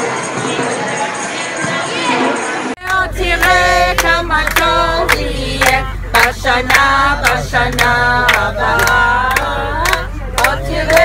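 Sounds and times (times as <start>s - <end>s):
group singing together: 0.0s - 11.0s
people clapping in time: 2.8s - 11.0s.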